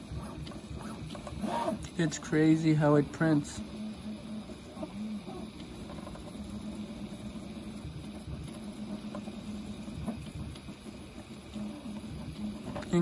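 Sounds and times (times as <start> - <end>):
cooling fans rushing: 0.0 - 13.0
stepper motors humming: 0.0 - 13.0.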